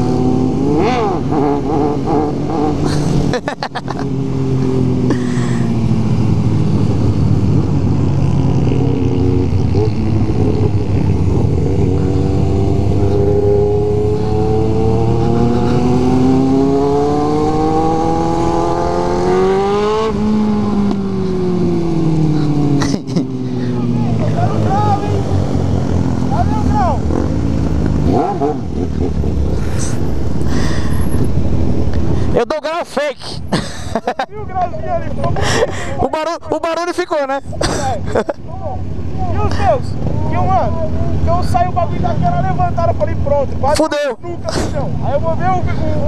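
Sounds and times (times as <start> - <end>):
motorcycle engine revving: 0.0 - 32.2.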